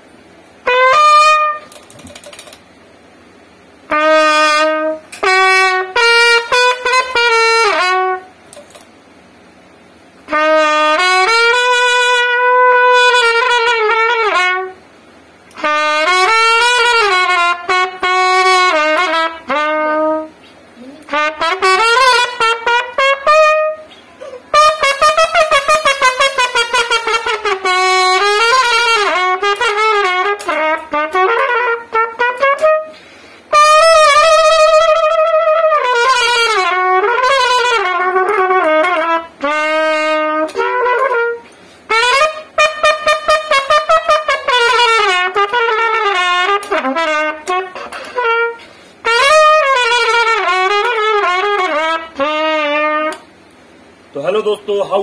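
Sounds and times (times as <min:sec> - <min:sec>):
solo trumpet melody: 0:00.6 - 0:01.9, 0:03.8 - 0:08.7, 0:10.2 - 0:14.9, 0:15.5 - 0:20.4, 0:21.0 - 0:53.3.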